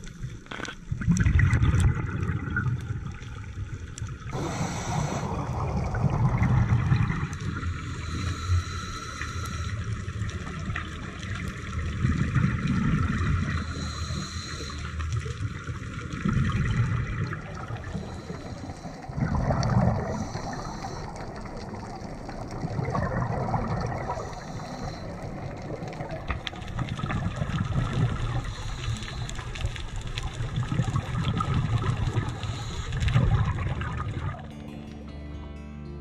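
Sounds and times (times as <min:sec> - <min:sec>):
low bubbling surge: 0:00.9 - 0:08.5, 0:15.4 - 0:28.5, 0:29.7 - 0:34.6
underwater rushing hiss: 0:04.3 - 0:10.6, 0:13.1 - 0:15.5, 0:17.2 - 0:30.4, 0:31.0 - 0:34.0.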